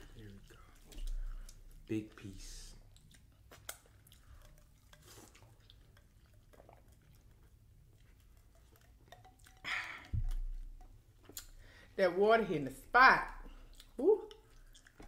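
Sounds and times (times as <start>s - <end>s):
chewing: 0.0s - 11.7s, 13.3s - 15.0s
fingers being licked: 2.8s - 11.6s
sipping water from a glass: 3.5s - 11.8s.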